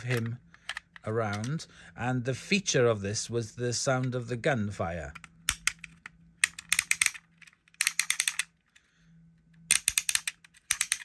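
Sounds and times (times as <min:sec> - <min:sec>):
toy gun ratchet clicks: 0:06.4 - 0:07.2, 0:07.8 - 0:08.5, 0:09.7 - 0:11.0.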